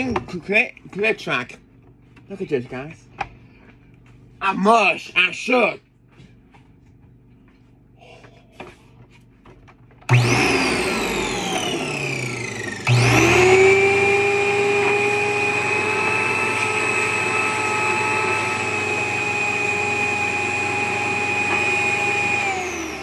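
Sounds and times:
vacuum cleaner motor whining: 10.0 - 23.0.

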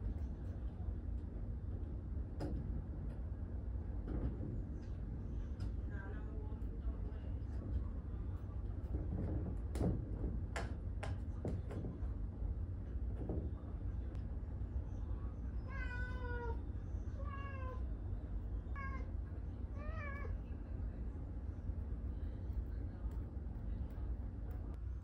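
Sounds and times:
steady low rumble: 0.0 - 25.0
cat meowing: 17.2 - 17.8.

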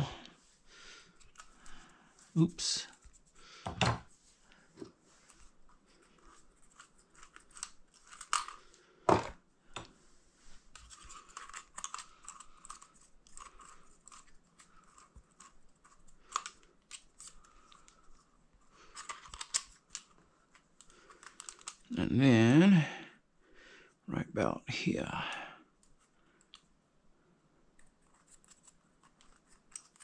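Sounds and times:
small clicks and rustles of handling: 1.1 - 3.4, 4.4 - 21.9, 25.7 - 26.8, 27.6 - 30.0.

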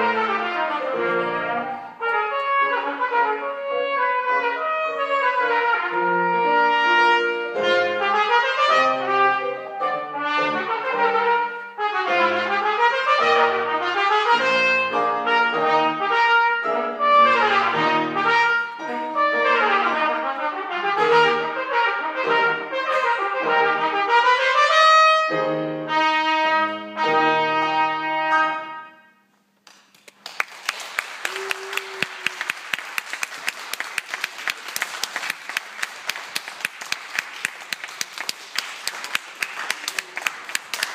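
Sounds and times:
trumpet and piano duet: 0.0 - 29.6
audience applauding: 29.6 - 40.9.

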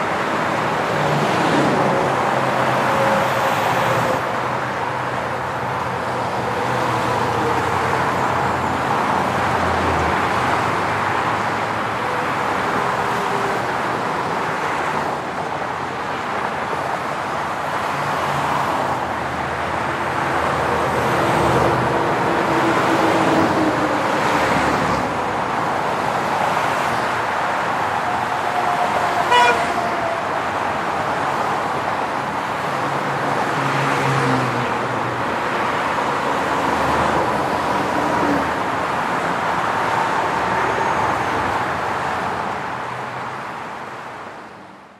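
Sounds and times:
highway traffic rushing: 0.0 - 44.9
car horn toot: 29.2 - 29.9.

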